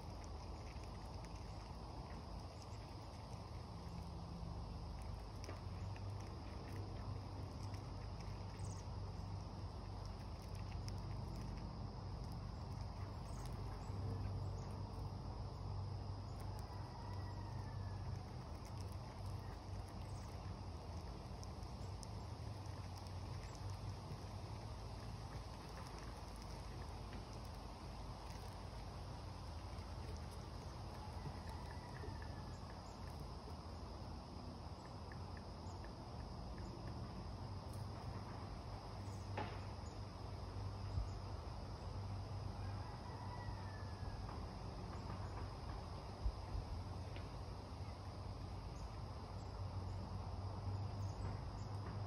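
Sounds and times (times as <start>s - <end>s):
soft clicks of seeds husked: 0.0s - 41.5s
insect trill: 0.0s - 52.0s
low outdoor rumble: 0.0s - 52.0s.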